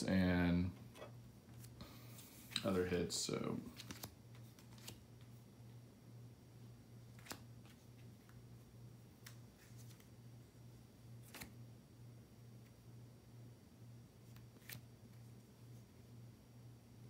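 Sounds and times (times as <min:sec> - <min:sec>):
low steady hum: 0:00.0 - 0:17.0
faint clicks of cards handled: 0:00.8 - 0:02.9, 0:03.7 - 0:05.4, 0:07.1 - 0:08.4, 0:09.1 - 0:10.2, 0:11.2 - 0:11.6, 0:14.3 - 0:15.3.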